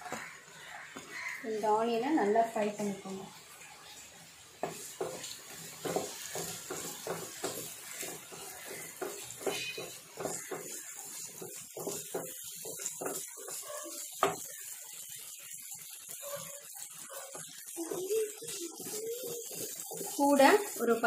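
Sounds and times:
onions sizzling in oil: 0:00.0 - 0:21.0
spatula scraping and tapping pan: 0:04.6 - 0:17.8, 0:18.5 - 0:21.0.

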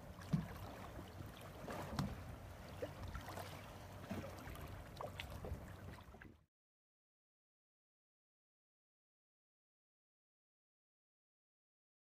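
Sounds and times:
water splashing against boat: 0:00.0 - 0:06.5.

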